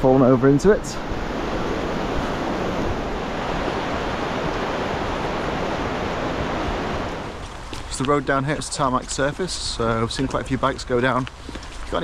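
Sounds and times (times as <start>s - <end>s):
river rushing over rapids: 0.9s - 7.6s.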